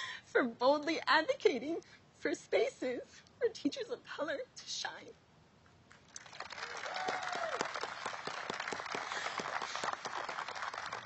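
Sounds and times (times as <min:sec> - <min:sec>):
audience applause: 0:06.1 - 0:11.0
crowd whoop: 0:06.5 - 0:08.2.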